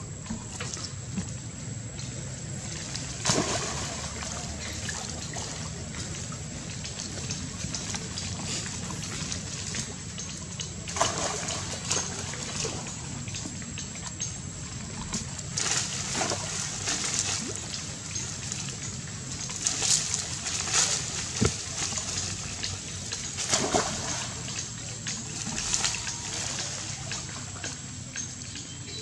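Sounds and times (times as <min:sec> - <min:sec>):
water splashing and sloshing: 0:00.0 - 0:29.0.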